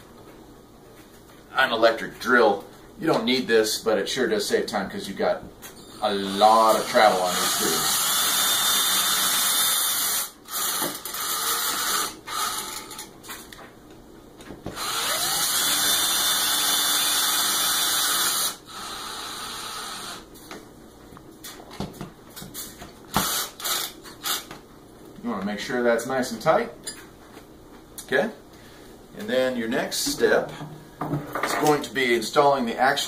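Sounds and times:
cordless drill motor whine: 14.8 - 20.3.

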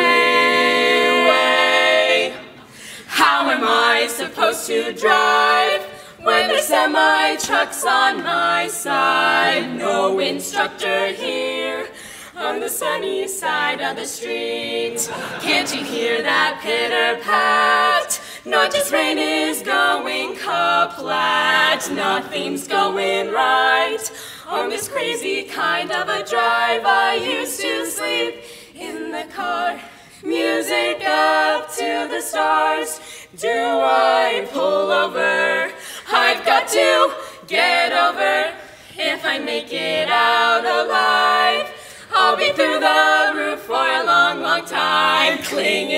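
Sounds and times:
women singing a cappella harmony: 0.0 - 45.9.

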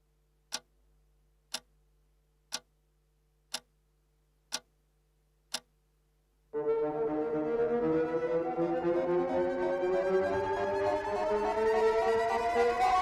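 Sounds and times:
clock ticking: 0.5 - 0.8, 1.5 - 1.8, 2.5 - 2.8, 3.5 - 3.8, 4.5 - 4.8, 5.5 - 5.8.

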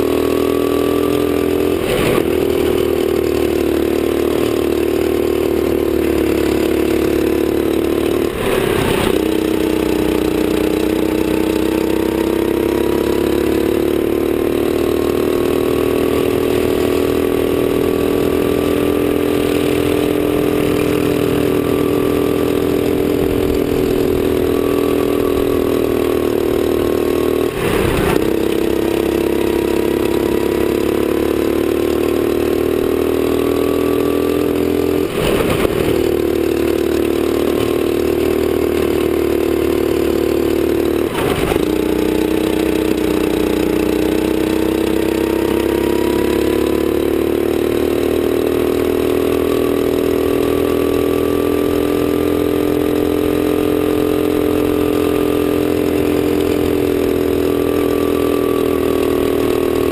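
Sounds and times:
kart engine accelerating: 0.0 - 59.9
short engine rattle: 35.1 - 38.2, 40.6 - 43.1.

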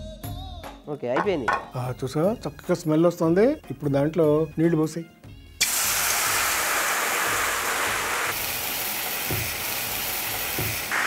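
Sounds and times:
water hissing on hot pan: 5.6 - 11.0
water poured into hot pan: 5.6 - 11.0.

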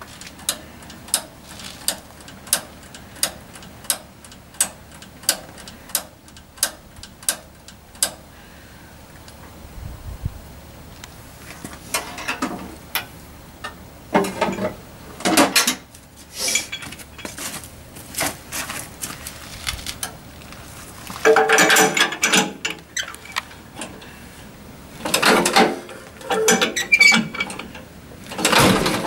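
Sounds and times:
metal clanks and rattles: 11.9 - 17.6, 21.2 - 24.0, 25.0 - 29.0.

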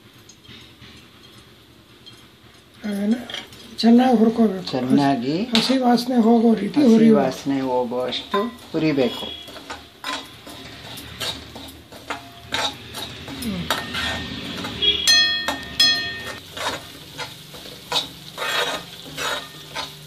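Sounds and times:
light sizzle: 0.0 - 20.0
spoon scraping pan: 0.4 - 20.0
spoon ringing against metal pan: 8.2 - 10.5, 13.7 - 16.4.

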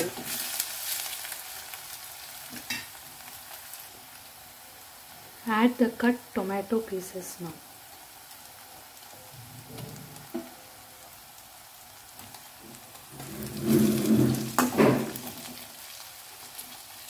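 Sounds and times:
food sizzling in a pan: 0.0 - 17.0
spatula scraping a pan: 13.2 - 15.6.

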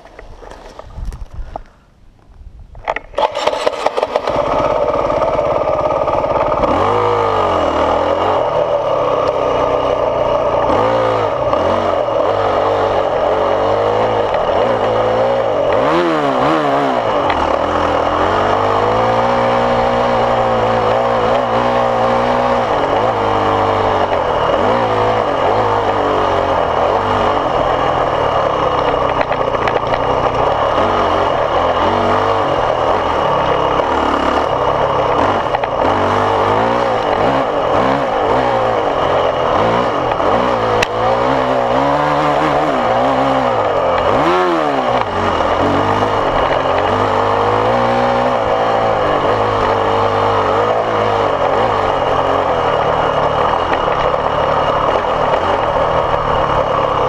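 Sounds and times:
dirt bike engine revving: 3.1 - 57.0.

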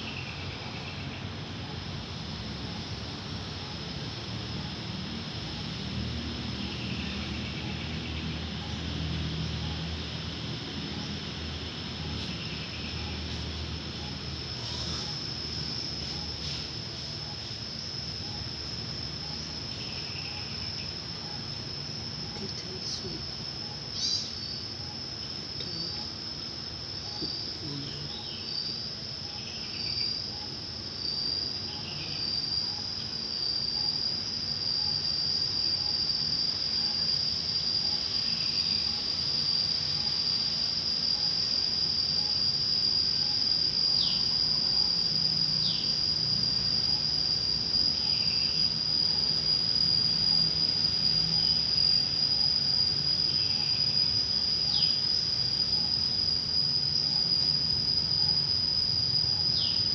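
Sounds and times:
high-pitched insect trill: 0.0 - 59.9
falling chirps: 23.8 - 26.2.

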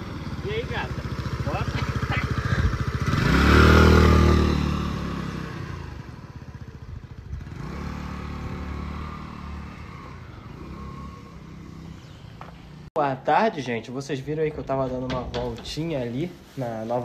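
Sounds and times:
scooter engine accelerating: 0.0 - 12.9.

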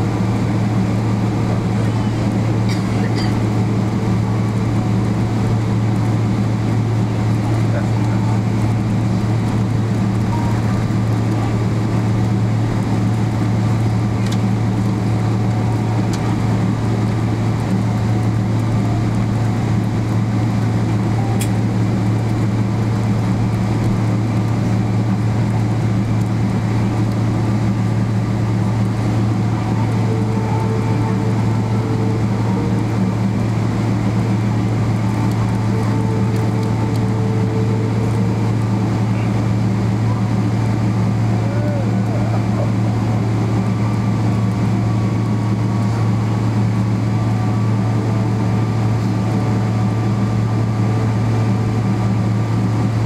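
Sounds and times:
aircraft cabin drone: 0.0 - 53.0.

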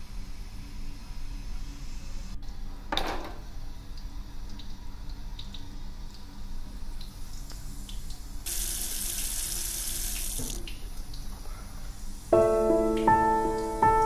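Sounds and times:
sink tap running: 8.5 - 10.8
piano music: 12.3 - 14.0.

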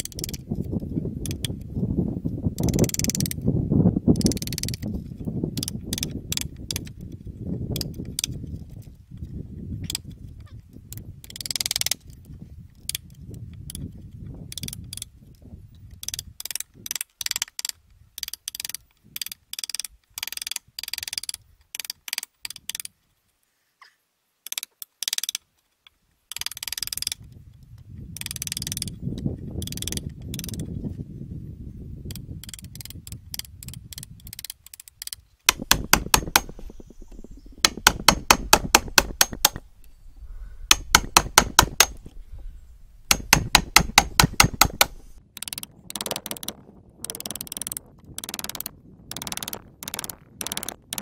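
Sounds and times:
hammer striking steel chisel: 35.5 - 39.7, 40.7 - 42.1, 43.0 - 45.2.

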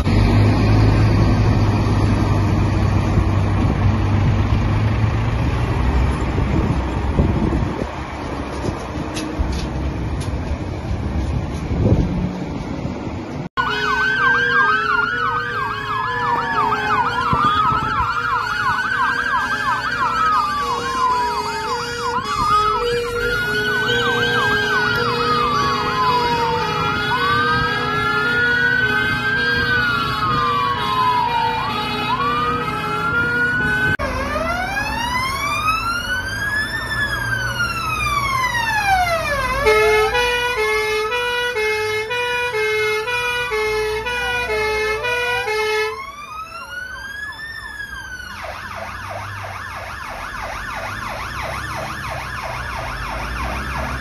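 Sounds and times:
fire engine sirens wailing: 0.0 - 10.9, 13.5 - 54.0
two-note siren tone: 13.6 - 35.8.

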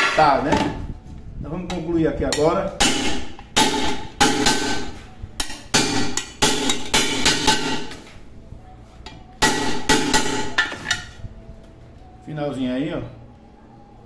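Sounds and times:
hammer striking metal: 2.3 - 8.0, 9.4 - 11.1.

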